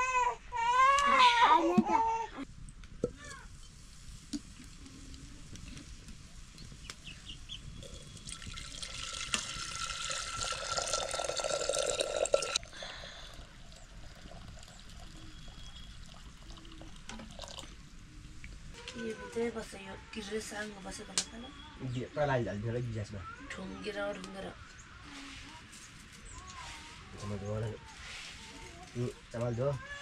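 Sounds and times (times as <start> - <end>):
water pouring into a vessel: 7.8 - 17.8.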